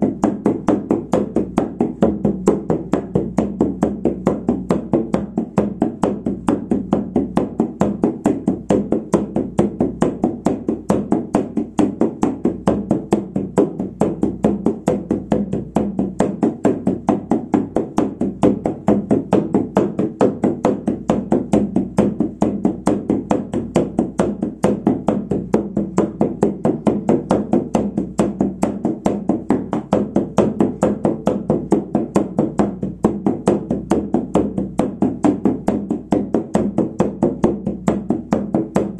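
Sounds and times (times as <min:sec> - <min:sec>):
frame drum beating: 0:00.0 - 0:38.9.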